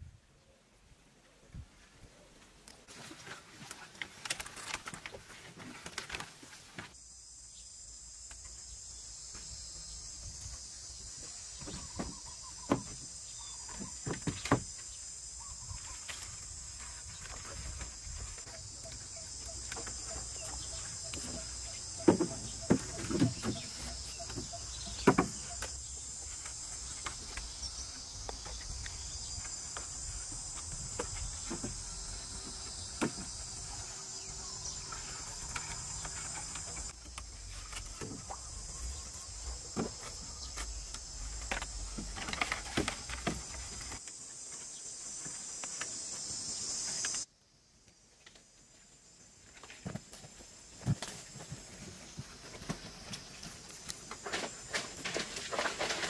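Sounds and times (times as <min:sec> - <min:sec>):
insects buzzing: 0:04.5 - 0:56.0
wooden poles knocking: 0:18.5 - 0:25.8.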